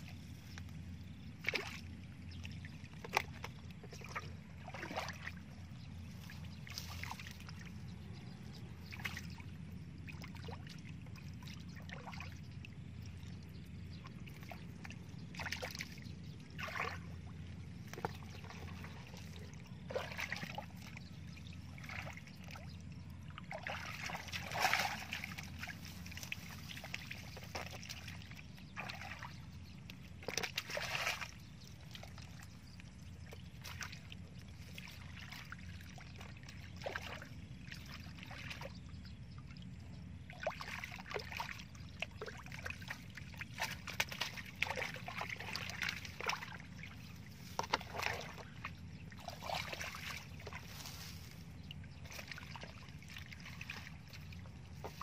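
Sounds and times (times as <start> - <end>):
muddy water splashing: 0.0 - 55.0.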